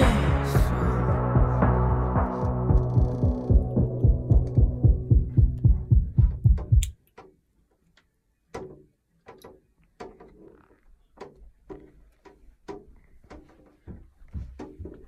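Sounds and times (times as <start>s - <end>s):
music with pulsing bass beat: 0.0s - 6.9s.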